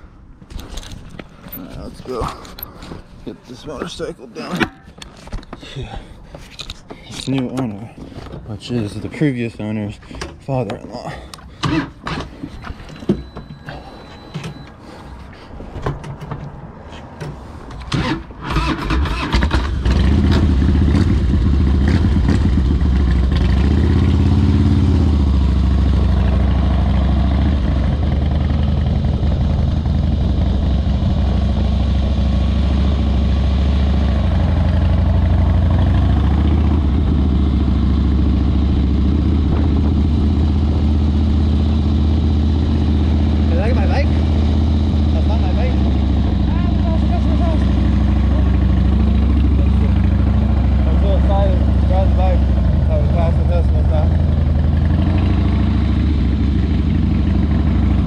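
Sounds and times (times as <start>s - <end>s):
motorcycle engine idling: 20.1s - 58.0s.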